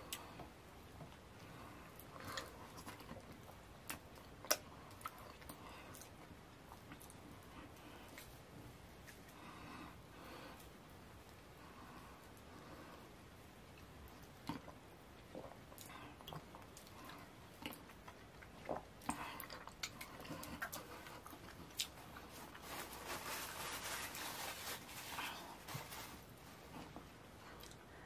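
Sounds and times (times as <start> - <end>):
paper tissue rustling: 22.2 - 26.7.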